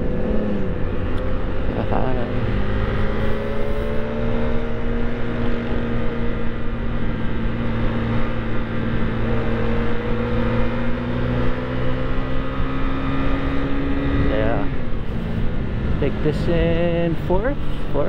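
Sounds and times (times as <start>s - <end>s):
motorcycle engine running: 0.0s - 18.0s.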